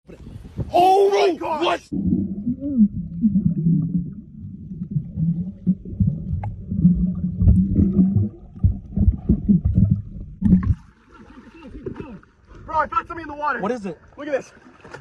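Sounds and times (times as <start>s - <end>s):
muffled underwater bubbling: 1.8s - 10.9s.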